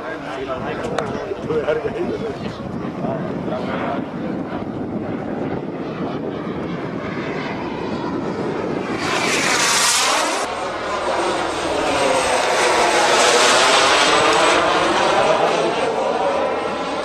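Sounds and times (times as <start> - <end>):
model jet turbine whine: 0.0 - 17.0.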